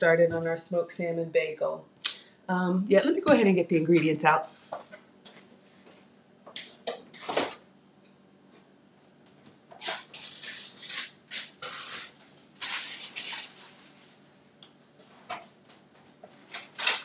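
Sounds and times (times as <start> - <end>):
rustling and clatter: 9.7 - 14.2.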